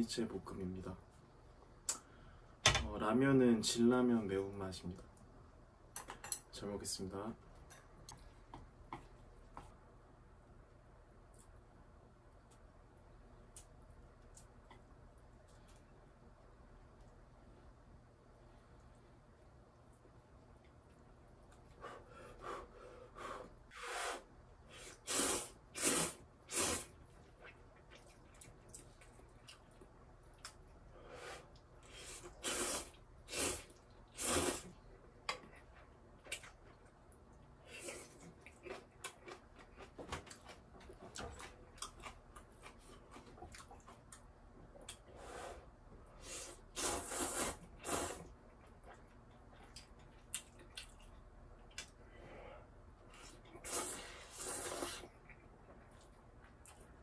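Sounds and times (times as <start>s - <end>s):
noodles being slurped: 24.9s - 27.0s, 31.9s - 34.8s, 46.2s - 48.4s, 53.4s - 55.3s
chewing and wet mouth clicks: 48.6s - 52.0s.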